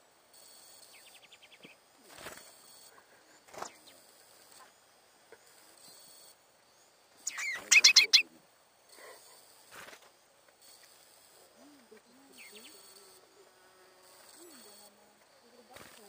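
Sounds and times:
bird trill: 7.2s - 8.3s
finches calling: 7.2s - 8.3s
sharp bird chirps: 7.2s - 8.3s.

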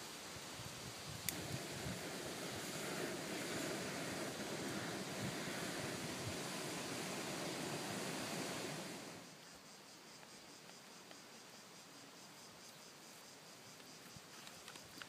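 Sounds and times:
gas stove burner hissing: 0.0s - 9.4s.

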